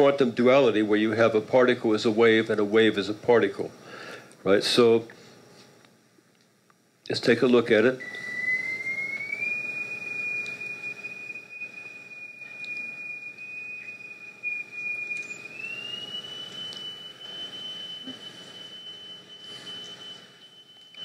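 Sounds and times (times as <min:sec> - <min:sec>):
high-pitched sine tone: 0:07.7 - 0:21.0.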